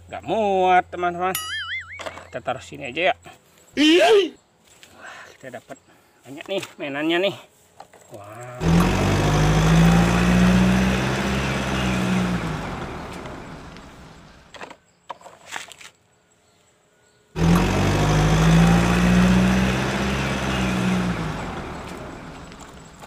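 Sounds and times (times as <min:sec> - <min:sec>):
truck engine humming: 0:08.6 - 0:14.5, 0:17.4 - 0:23.0.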